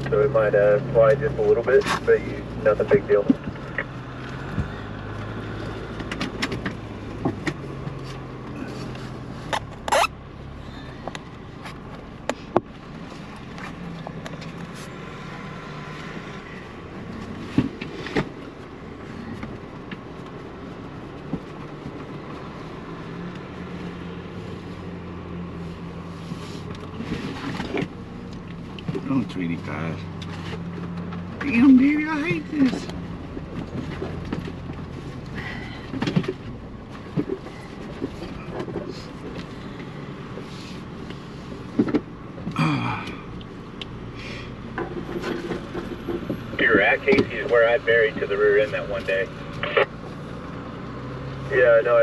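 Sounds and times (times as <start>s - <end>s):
vehicle engine running at low speed: 0.0s - 52.0s
vehicle body clicks and knocks: 3.1s - 10.2s, 11.0s - 14.8s, 17.0s - 20.4s, 26.6s - 29.2s, 32.6s - 40.4s, 41.0s - 47.6s.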